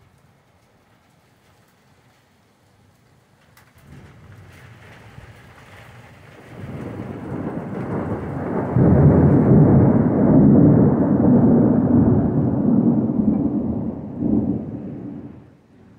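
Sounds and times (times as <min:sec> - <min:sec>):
deep thunder rumble: 0:03.8 - 0:15.9.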